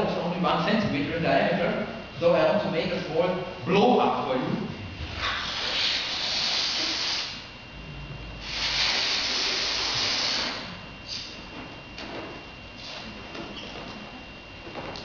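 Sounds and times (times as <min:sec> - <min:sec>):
man blowing up balloon: 0:05.2 - 0:07.5, 0:08.4 - 0:11.4.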